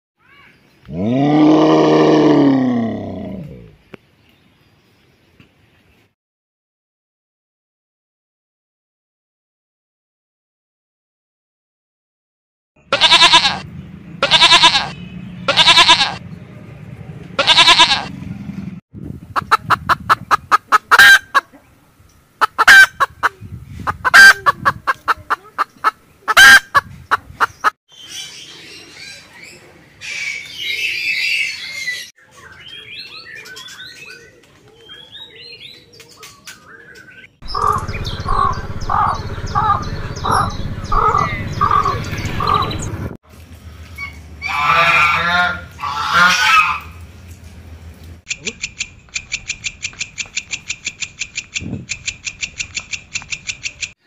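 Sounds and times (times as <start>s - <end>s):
chicken calling: 12.9s - 16.2s, 17.4s - 18.1s, 19.4s - 21.6s, 22.4s - 27.7s, 37.4s - 42.9s, 44.0s - 47.0s
chicken clucking: 19.4s - 21.6s, 22.4s - 27.7s
geese honking: 20.4s - 21.4s, 22.4s - 23.2s, 37.5s - 42.8s, 44.4s - 47.0s.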